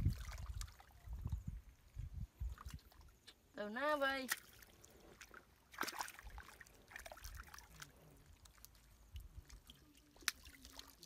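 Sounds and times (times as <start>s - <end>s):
foot wading through muddy water: 0.0s - 1.2s, 4.1s - 11.0s.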